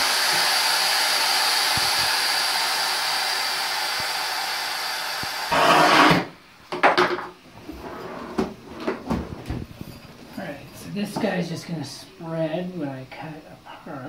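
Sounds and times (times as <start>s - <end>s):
electric saw motor whine: 0.0s - 6.3s.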